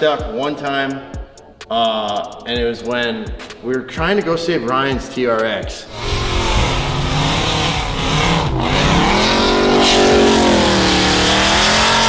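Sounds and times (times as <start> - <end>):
truck engine revving hard: 5.9 - 12.0.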